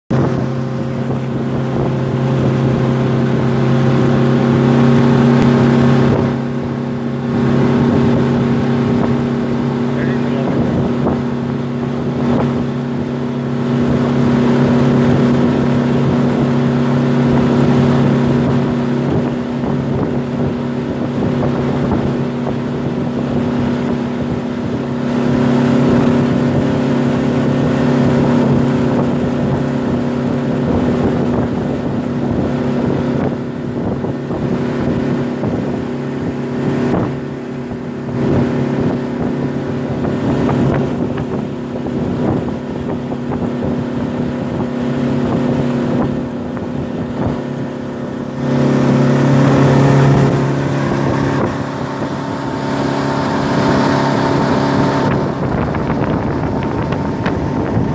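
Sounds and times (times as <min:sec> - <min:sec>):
outboard motor humming: 0:00.1 - 0:57.9
wake rushing: 0:00.1 - 0:57.9
wind on microphone: 0:00.1 - 0:57.9.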